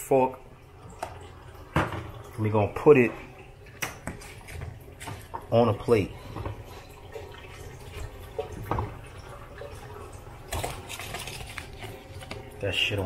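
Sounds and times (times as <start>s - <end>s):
tap running into metal sink: 1.0s - 2.3s, 8.0s - 9.2s.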